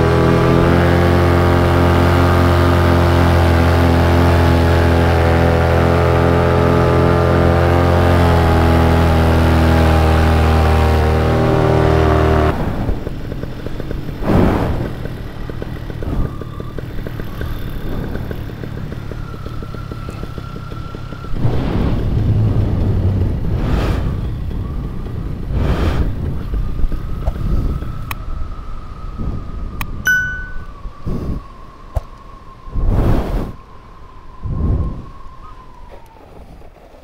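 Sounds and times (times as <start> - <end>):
paramotor engine and propeller: 0.0 - 32.6
wind over microphone: 12.5 - 37.0.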